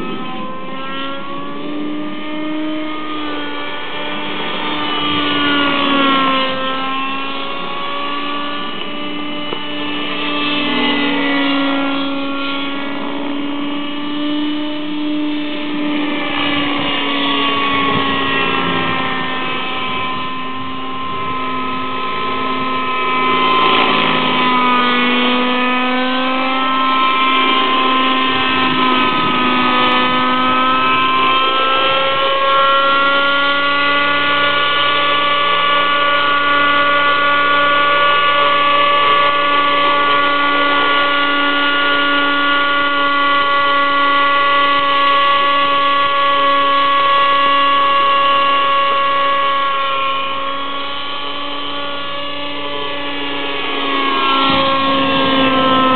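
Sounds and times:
model helicopter engine whining: 0:00.0 - 0:55.9.

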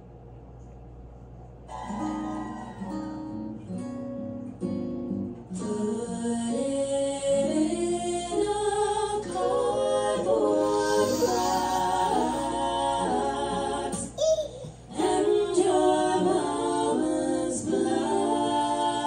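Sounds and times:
female vocal harmonies: 0:05.5 - 0:19.0.

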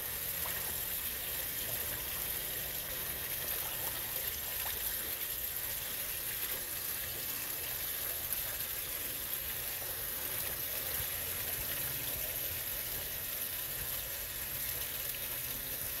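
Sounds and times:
water splashing into a pond: 0:00.0 - 0:16.0.

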